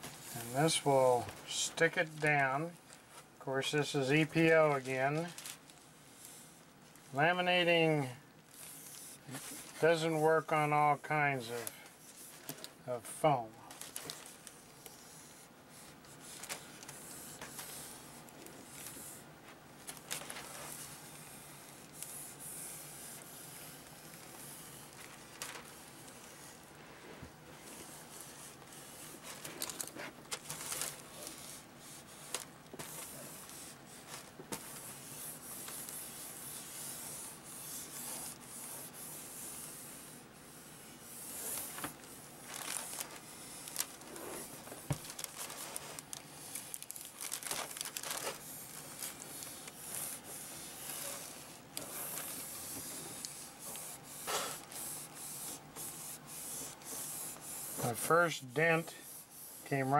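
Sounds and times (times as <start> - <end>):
plastic film crinkling: 4.2 - 6.0, 13.6 - 19.2, 19.8 - 22.4, 23.1 - 26.7, 27.6 - 39.0, 41.2 - 57.9
sealing iron rubbing over film: 27.7 - 59.9.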